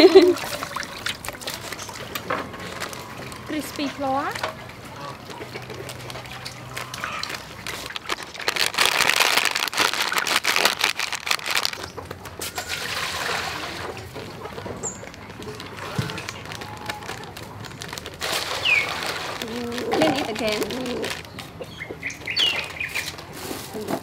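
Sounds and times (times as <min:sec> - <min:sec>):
plastic packet crinkling: 0:05.5 - 0:12.2, 0:14.0 - 0:21.6.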